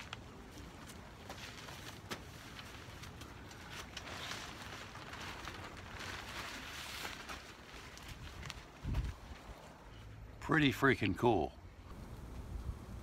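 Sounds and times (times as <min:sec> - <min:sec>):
tarp rustling and crinkling: 0:00.0 - 0:10.0.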